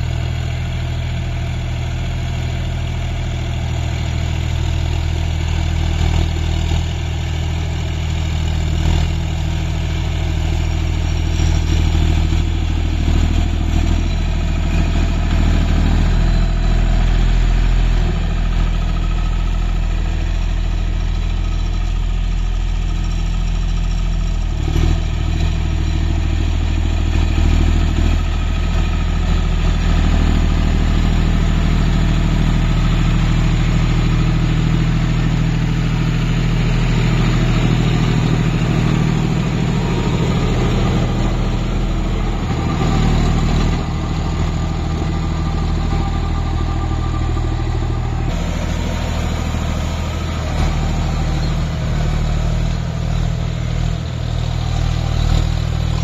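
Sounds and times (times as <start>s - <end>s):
tractor diesel engine under load: 0.0s - 56.0s
rotavator tilling soil: 29.4s - 56.0s.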